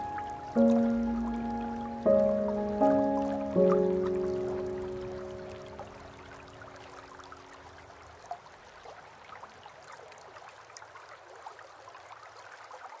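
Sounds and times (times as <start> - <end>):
water droplets plinking: 0.0 - 7.4
small waterfall trickling: 0.0 - 13.0.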